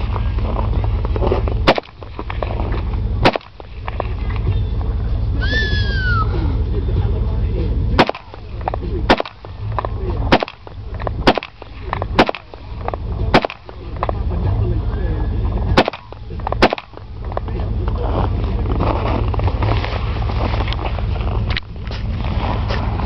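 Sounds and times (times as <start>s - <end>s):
rifle single shots: 8.0s - 9.5s, 10.3s - 12.7s, 13.3s - 13.8s, 15.8s - 17.1s.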